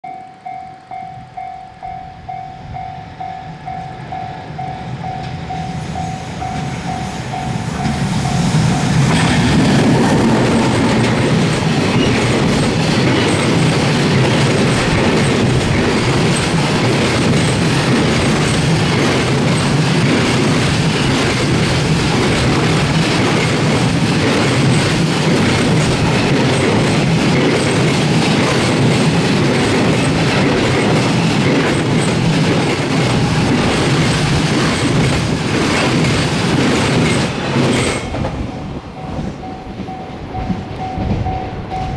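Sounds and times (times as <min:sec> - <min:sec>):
level crossing bell ringing: 0:00.0 - 0:08.4, 0:38.9 - 0:41.9
train wagons clattering over rails: 0:01.4 - 0:41.9.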